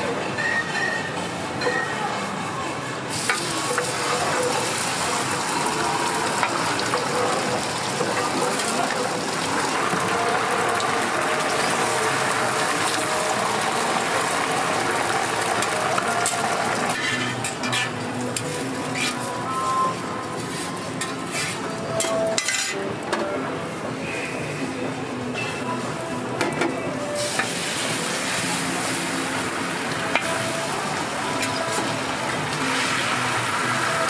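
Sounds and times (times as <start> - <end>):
batter sizzling on a griddle: 3.1 - 19.7, 27.2 - 34.0.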